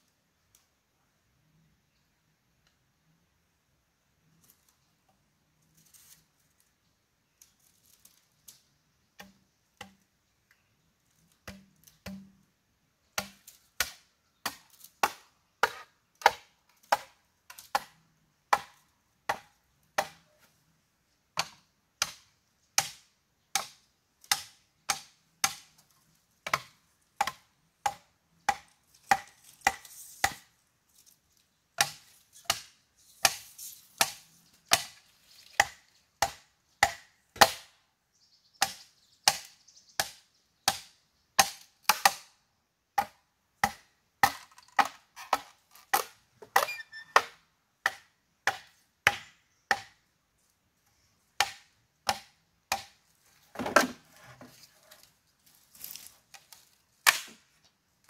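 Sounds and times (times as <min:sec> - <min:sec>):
hand tool striking bamboo: 0:09.2 - 0:10.1, 0:11.3 - 0:12.4, 0:13.1 - 0:20.4, 0:21.4 - 0:25.8, 0:26.4 - 0:30.6, 0:31.8 - 0:35.0, 0:35.6 - 0:37.8, 0:38.6 - 0:42.3, 0:43.0 - 0:50.0, 0:51.4 - 0:53.0, 0:57.0 - 0:57.5.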